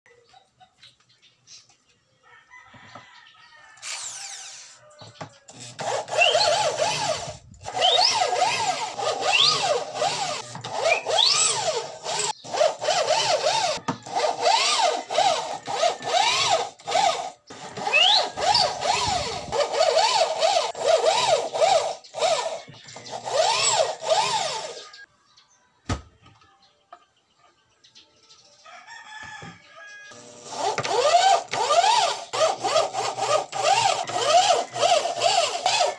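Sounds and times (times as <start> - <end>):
cordless drill driving screws: 3.8 - 4.8, 5.5 - 25.0, 30.2 - 35.9.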